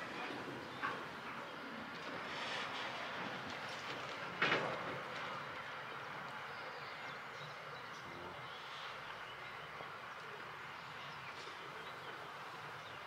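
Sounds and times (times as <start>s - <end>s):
train wheels rolling on track: 0.0s - 7.8s.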